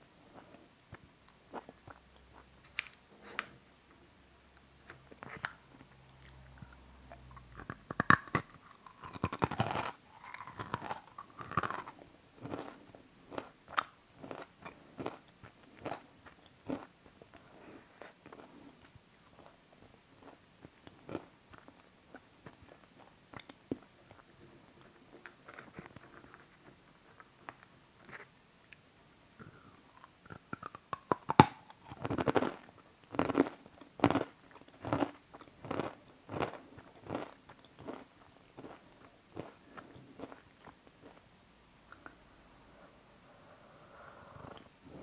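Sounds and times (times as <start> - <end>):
person chewing crunchy sweets: 5.0 - 26.6, 29.4 - 41.3.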